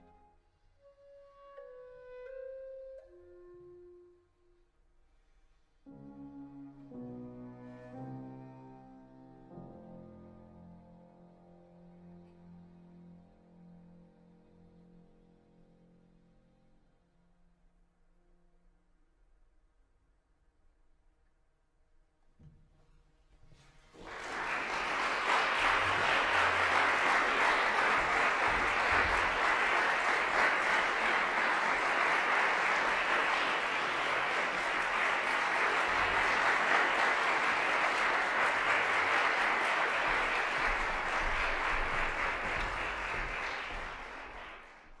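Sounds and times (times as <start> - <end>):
audience applauding: 23.9 - 45.0.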